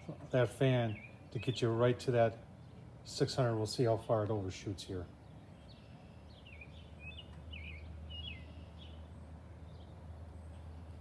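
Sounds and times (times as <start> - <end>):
small birds chirping: 0.0 - 11.0
steady low hum: 0.0 - 11.0.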